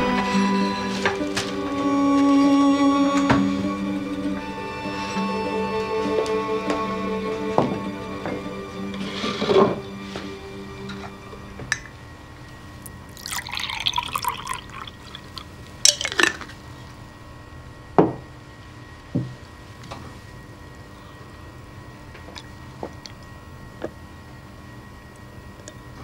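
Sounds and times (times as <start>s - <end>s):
milk pouring into glass: 12.8s - 16.4s.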